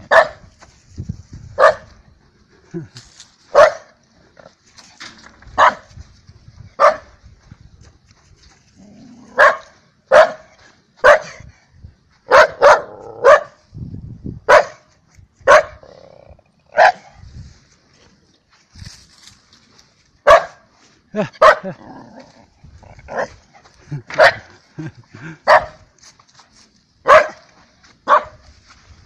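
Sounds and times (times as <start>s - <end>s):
dog barking: 0.0s - 0.4s, 1.6s - 1.9s, 3.5s - 4.0s, 5.6s - 5.9s, 6.8s - 7.1s, 9.3s - 11.4s, 12.3s - 13.6s, 14.5s - 14.9s, 15.5s - 15.8s, 16.7s - 17.1s, 20.2s - 20.6s, 21.4s - 21.7s, 24.1s - 24.5s, 25.4s - 25.8s, 27.0s - 28.4s.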